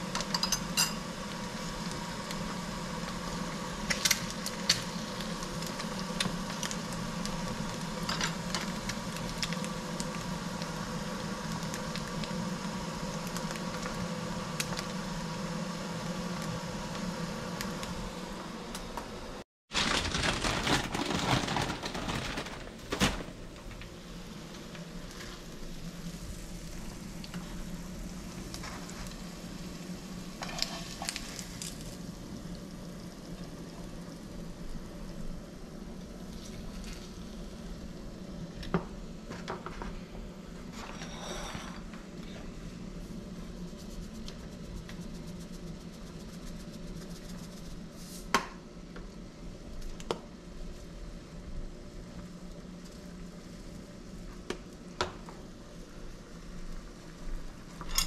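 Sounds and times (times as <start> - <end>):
stovetop hum and hiss: 0.0 - 58.0.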